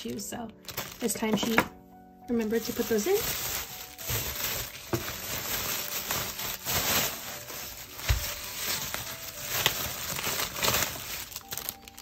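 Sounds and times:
bubble wrap crinkling: 0:00.5 - 0:01.6, 0:02.4 - 0:12.0.

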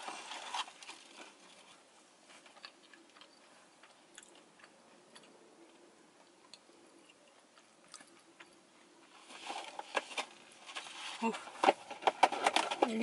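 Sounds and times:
soft rustle: 0:00.0 - 0:04.0, 0:07.0 - 0:13.0
chewing with mouth closed: 0:02.4 - 0:08.5.

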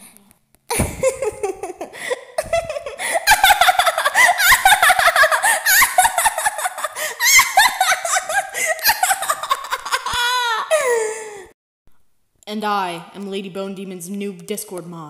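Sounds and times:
people giggling: 0:00.7 - 0:11.0.

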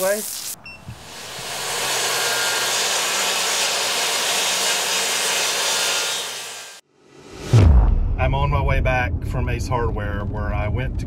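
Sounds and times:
table saw cutting plywood: 0:00.9 - 0:06.8.

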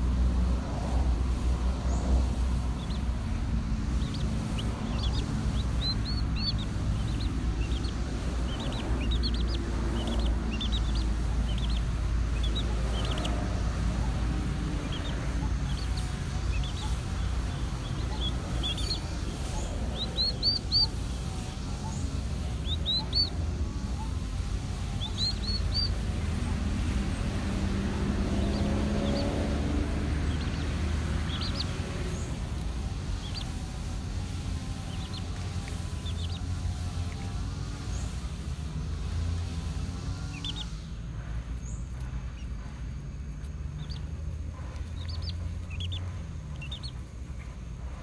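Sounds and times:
chicks peeping: 0:00.0 - 0:48.0
steady low rumble: 0:00.0 - 0:48.0.

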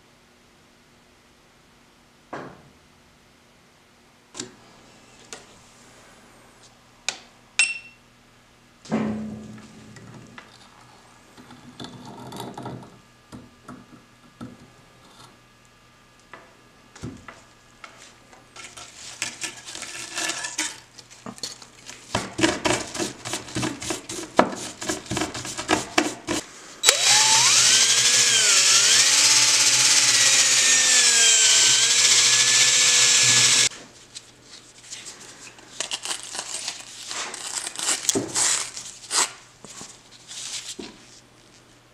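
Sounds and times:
power wire brush grinding: 0:26.8 - 0:33.7.

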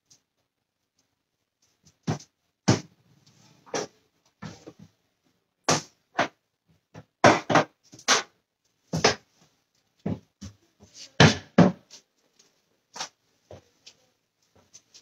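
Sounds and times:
kitchen items knocking and clattering: 0:05.7 - 0:08.3.

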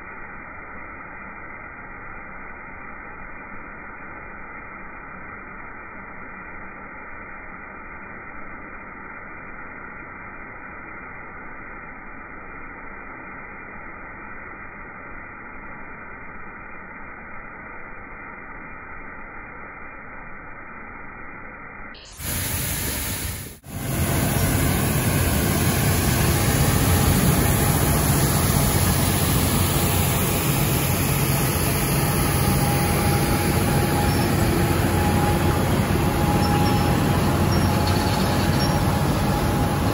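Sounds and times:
faint machine whine: 0:00.0 - 0:39.9
road milling machine engine drone: 0:22.0 - 0:39.9.

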